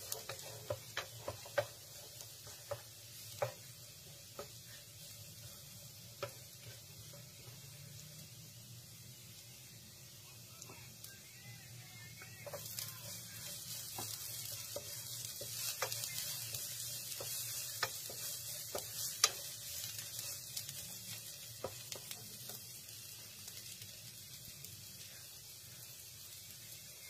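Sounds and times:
utensil clicking against pan: 0.0 - 3.7, 12.4 - 20.0
garlic sizzling in hot oil: 0.0 - 27.0.

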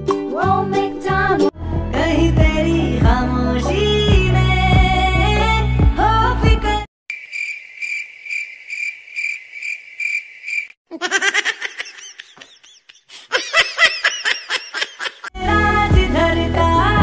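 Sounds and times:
cricket chirping sound effect: 7.1 - 10.8
high-pitched cartoonish laugh: 10.9 - 15.3.

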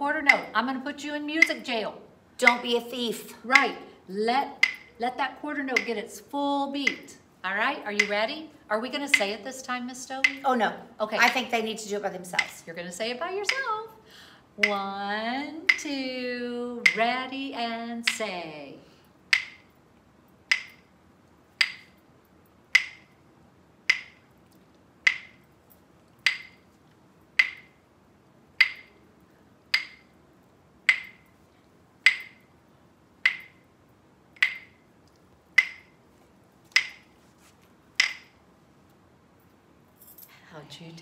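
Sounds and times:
rhythm sticks clicking: 0.0 - 14.0, 14.6 - 18.6, 19.2 - 27.9, 28.5 - 38.4.

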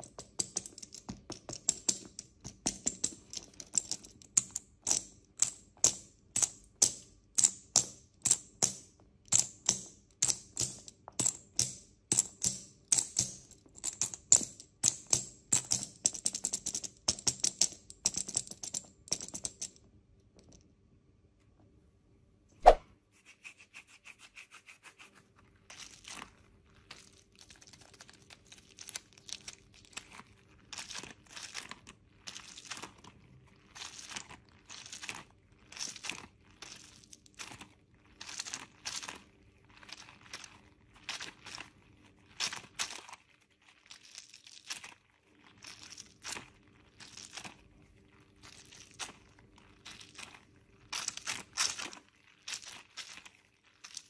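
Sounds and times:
crinkling and rustling: 25.4 - 54.0.

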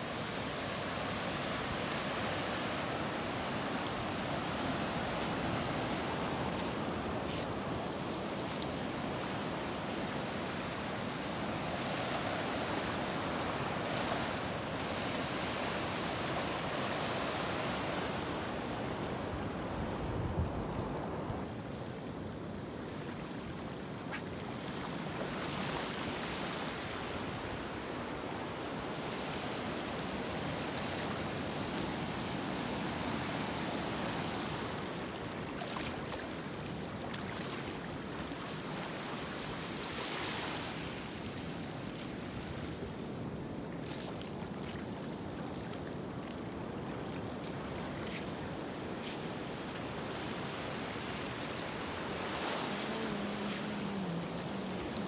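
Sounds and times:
sea waves washing: 0.0 - 19.7, 43.2 - 55.0
wind blowing: 47.6 - 55.0.

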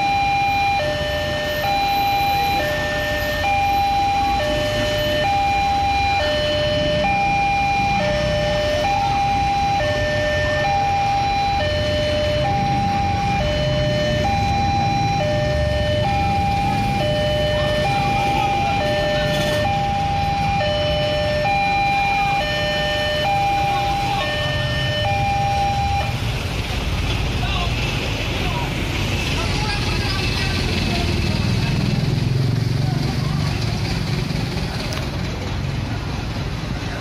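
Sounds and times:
level crossing two-tone alarm: 0.0 - 26.2.

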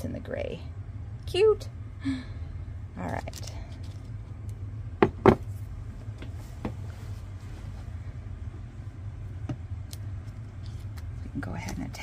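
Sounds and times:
steady low hum: 0.0 - 12.0
sharp knocks on work mat: 5.0 - 5.4.

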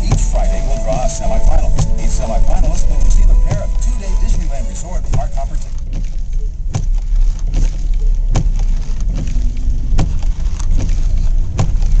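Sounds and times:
vehicle rumble from inside cab: 0.0 - 12.0
windshield wipers clunking: 0.0 - 12.0.

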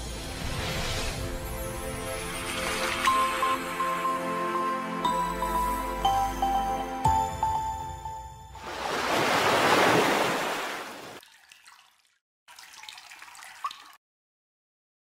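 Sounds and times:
splashing liquid whoosh: 8.6 - 11.2.

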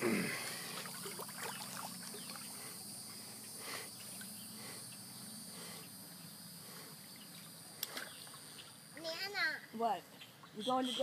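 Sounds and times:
high insect drone: 0.0 - 11.0
small water splashes: 0.6 - 2.6.

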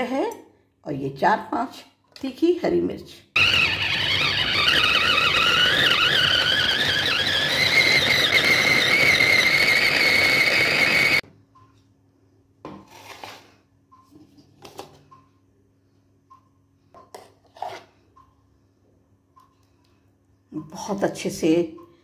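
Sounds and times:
food chopper motor whining: 3.4 - 11.2.

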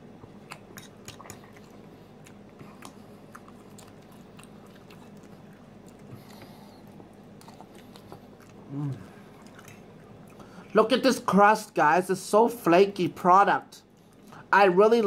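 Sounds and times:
person chewing crunchy food: 0.0 - 10.7.

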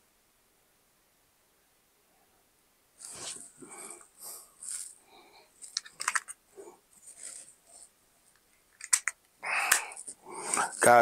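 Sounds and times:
hands rustling earbuds case: 3.0 - 11.0
sharp plastic clicks: 8.4 - 10.7.

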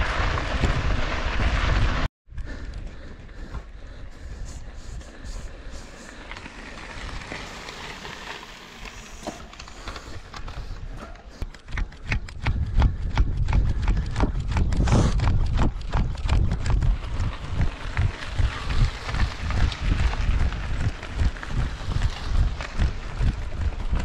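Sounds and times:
mountain bike rolling over ground: 0.0 - 3.6, 5.1 - 24.0
wind on microphone: 11.7 - 24.0.

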